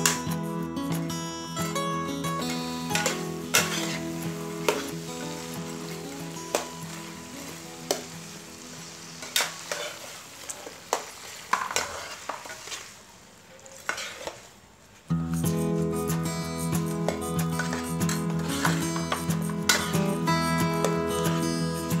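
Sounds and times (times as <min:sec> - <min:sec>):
shrimp sizzling in hot oil: 0:02.1 - 0:14.6, 0:17.0 - 0:22.0
spatula scraping a pan: 0:02.4 - 0:08.1, 0:09.2 - 0:13.0, 0:13.6 - 0:14.6, 0:17.5 - 0:20.0.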